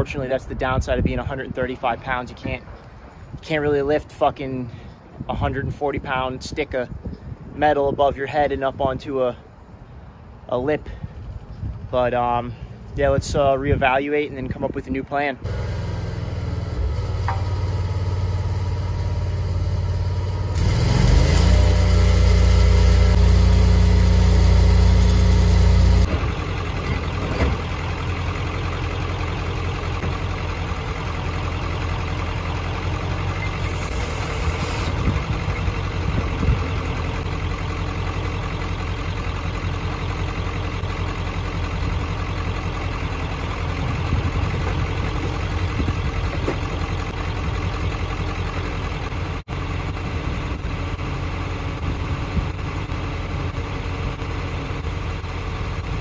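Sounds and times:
welding rig engine idling: 15.4 - 50.1.

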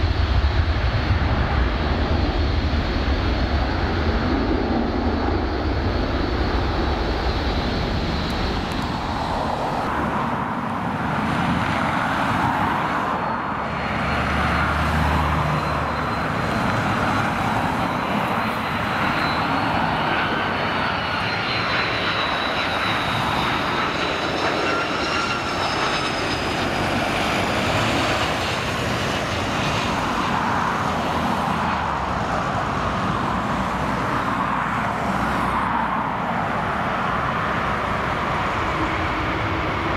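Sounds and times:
jet engines roaring and whining: 0.0 - 39.9.

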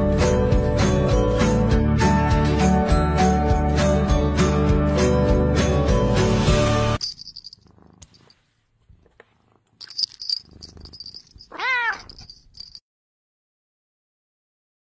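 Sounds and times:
background music: 0.0 - 7.0
cat meow: 11.5 - 12.3.

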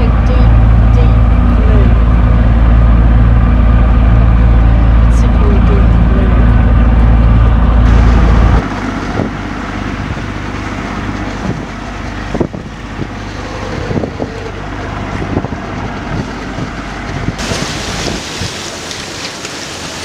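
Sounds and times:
wind buffeting microphone: 0.0 - 18.8
steady low rumble: 0.0 - 19.3
waves rushing past hull: 7.8 - 20.0.

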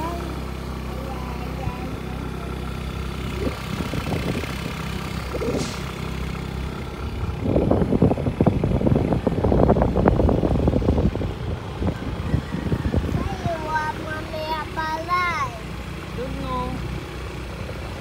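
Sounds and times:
motorcycle engine running: 0.0 - 18.0
wind buffeting microphone: 3.2 - 15.0.

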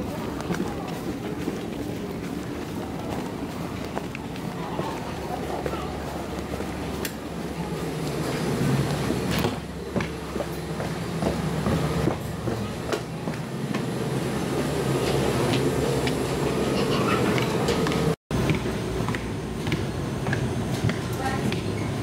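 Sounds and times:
footsteps clicks and knocks: 0.0 - 21.8.

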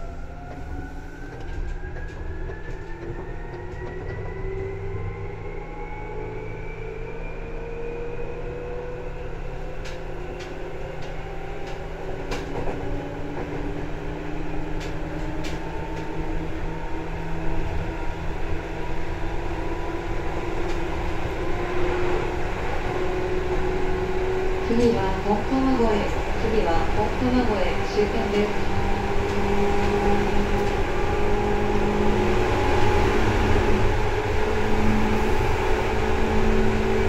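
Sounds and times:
low train rumble: 0.0 - 37.0
train motor whine rising: 0.2 - 8.6.

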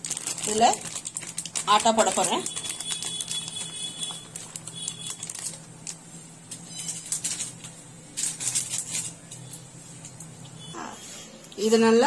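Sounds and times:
plastic packet crinkling: 0.0 - 6.0, 6.8 - 9.3.

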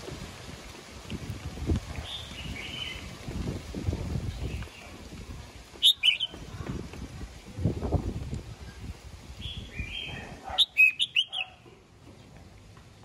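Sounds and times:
bird singing whistled phrases: 5.8 - 6.4, 9.4 - 11.6.

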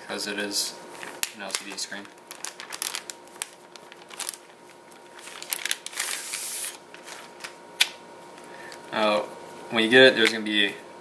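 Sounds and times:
plastic bag crinkling: 1.0 - 7.6.

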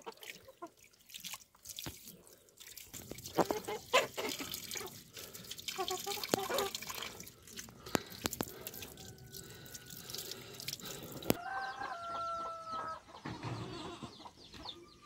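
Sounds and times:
sharp drips and knocks: 0.0 - 11.4
water splashing over chicken: 0.0 - 11.5
rooster crowing: 8.7 - 10.1, 11.3 - 13.1.

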